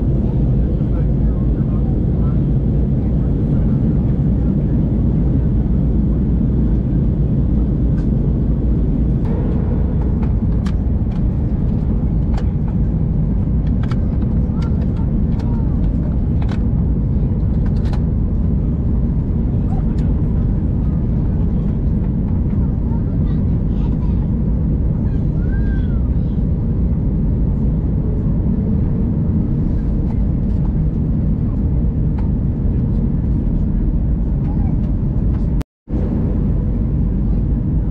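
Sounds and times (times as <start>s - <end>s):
aircraft cabin rumble: 0.0s - 37.9s
rushing air: 8.1s - 13.6s.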